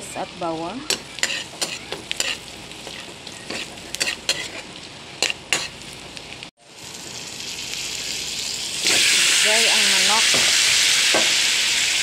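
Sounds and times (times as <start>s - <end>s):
onion sizzling in hot oil: 0.0s - 12.0s
metal spatula scraping a wok: 0.9s - 5.8s.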